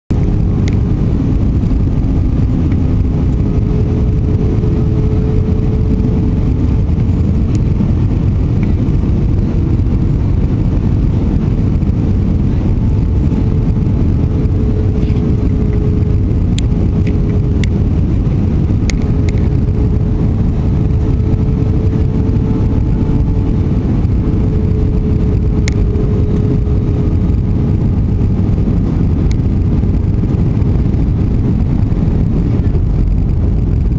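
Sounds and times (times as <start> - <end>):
jet engines and airflow rushing: 0.0 - 33.9
faint steady whine: 0.1 - 33.9.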